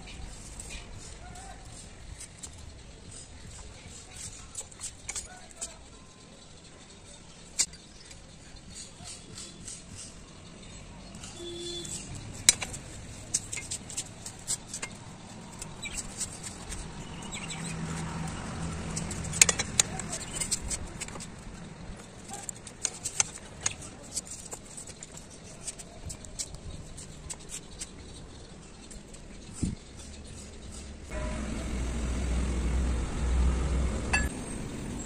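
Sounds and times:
metal clicks and clinks: 19.0 - 21.3.

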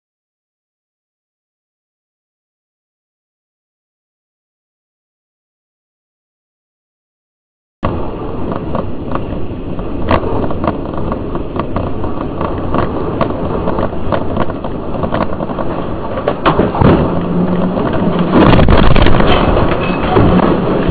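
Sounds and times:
scattered clicks and knocks: 7.8 - 20.9
tyre and wind road noise: 7.8 - 20.9.

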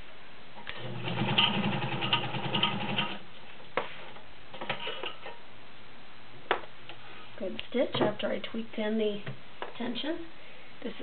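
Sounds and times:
sewing machine stitching: 0.8 - 3.2.

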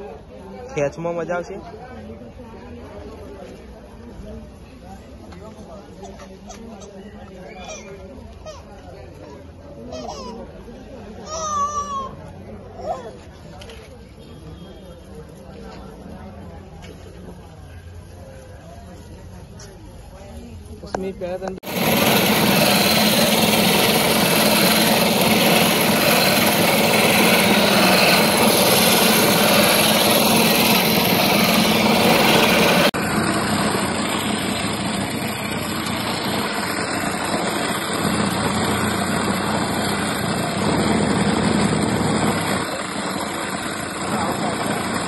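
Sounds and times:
electric motor humming: 21.6 - 45.0.

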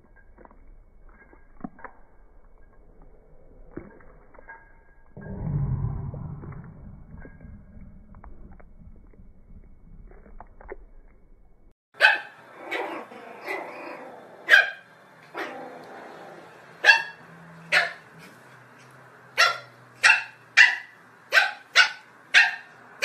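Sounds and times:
small dog barking: 12.0 - 13.8, 14.4 - 15.6, 16.8 - 18.1, 19.4 - 22.7.

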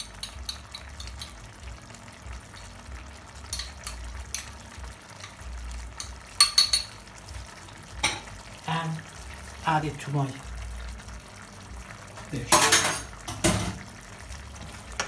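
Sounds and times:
spoon clinking on bowl rim: 6.0 - 6.9.

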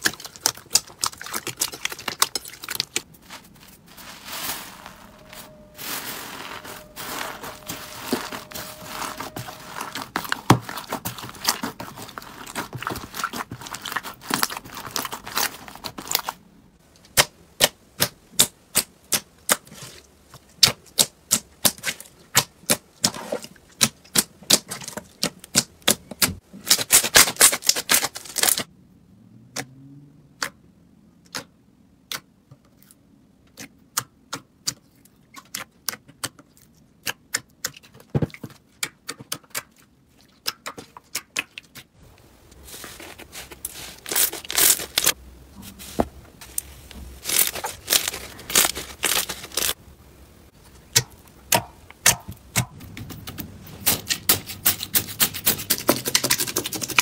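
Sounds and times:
crunchy slime crackling: 42.5 - 45.2, 46.4 - 49.8.

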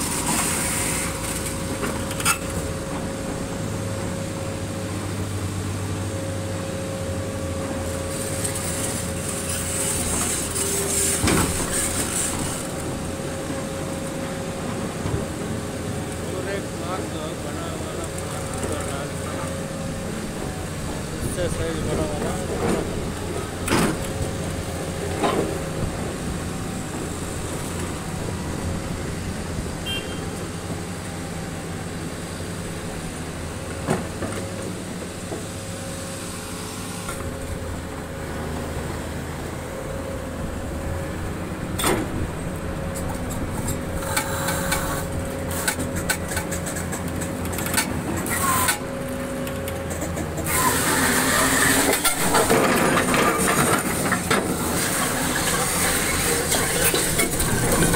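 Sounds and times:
excavator engine running: 0.0 - 57.9
metal scraping and grinding on rock: 8.1 - 12.8, 50.0 - 57.9.

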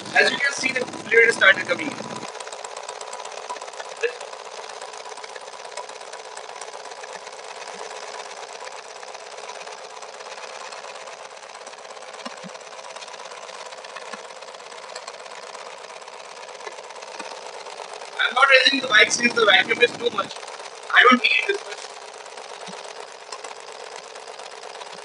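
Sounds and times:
motorcycle engine idling: 0.0 - 25.0.

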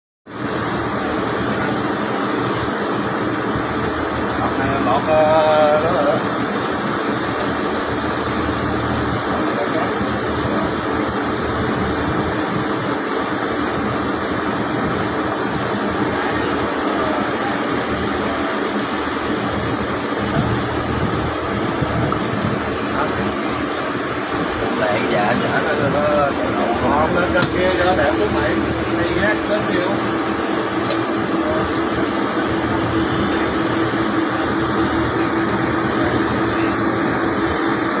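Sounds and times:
boat engine drone: 0.2 - 38.0
wind and water rushing: 0.4 - 38.0.

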